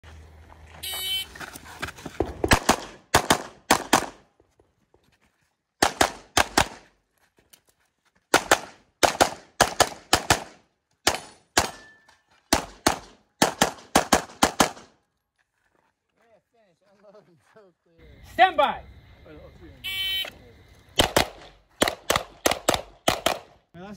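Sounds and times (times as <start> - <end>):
rapid pistol fire: 2.4 - 4.2, 5.8 - 6.8, 8.3 - 11.9, 12.5 - 14.9, 21.0 - 23.6.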